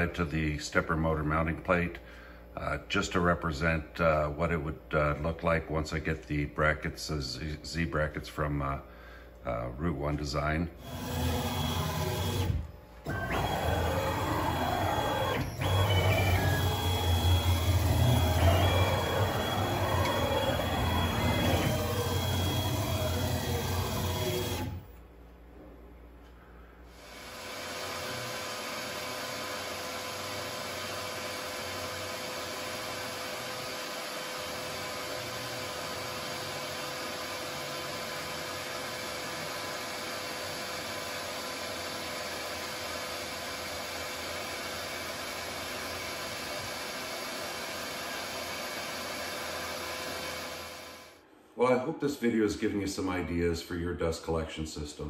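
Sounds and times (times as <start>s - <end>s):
shop vacuum hissing: 10.6s - 25.0s, 26.8s - 51.2s
cnc machine motor whine: 10.8s - 24.9s, 27.1s - 51.2s.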